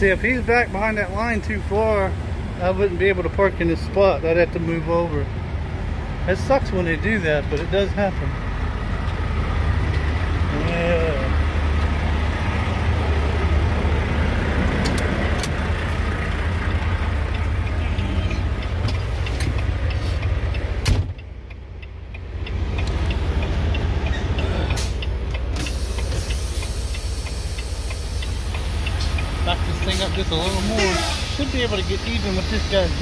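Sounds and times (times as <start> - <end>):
diesel truck engine idling: 0.0 - 33.0
light regular ticking: 14.5 - 30.8.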